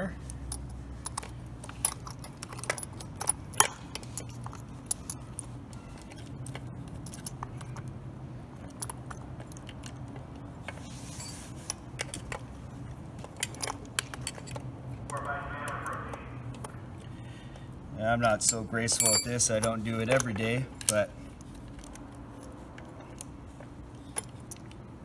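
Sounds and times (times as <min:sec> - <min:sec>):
saw chain clinking and rattling: 0:11.1 - 0:11.5, 0:18.2 - 0:19.8
low steady hum: 0:15.0 - 0:19.8.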